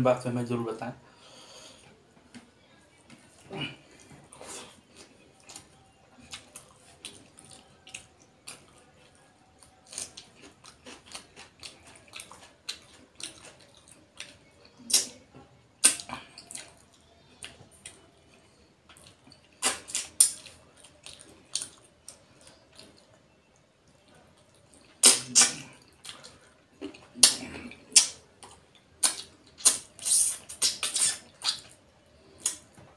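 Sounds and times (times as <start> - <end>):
wet mouth smacks and chewing: 18.9 - 23.1, 24.7 - 32.6.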